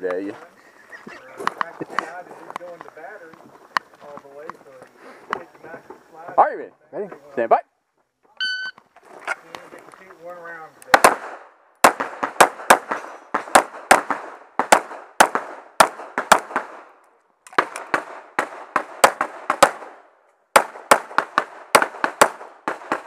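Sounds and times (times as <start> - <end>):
pistol shots: 10.9 - 16.9, 17.5 - 23.0.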